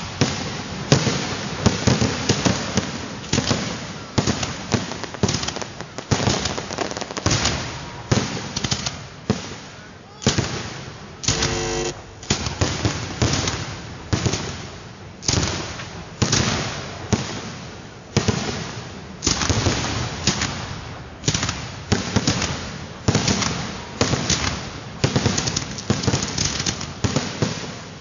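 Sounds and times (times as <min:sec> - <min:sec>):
fireworks bursting: 0:00.0 - 0:28.0
small firework pops: 0:00.2 - 0:09.6, 0:15.2 - 0:17.4, 0:19.2 - 0:27.8.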